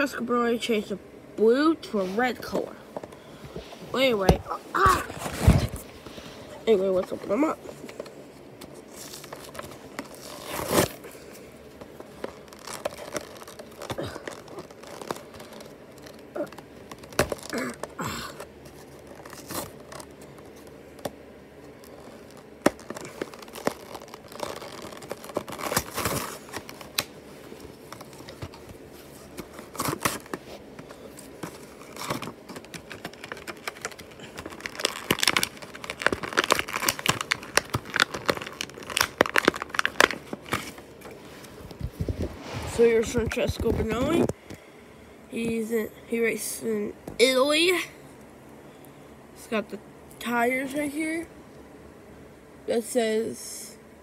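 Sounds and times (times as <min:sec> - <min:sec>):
cardboard tearing: 0:04.8 - 0:05.8, 0:08.8 - 0:11.1, 0:12.1 - 0:20.1, 0:21.8 - 0:27.1, 0:27.8 - 0:40.8
plastic crinkling: 0:07.8 - 0:20.7, 0:21.7 - 0:44.4.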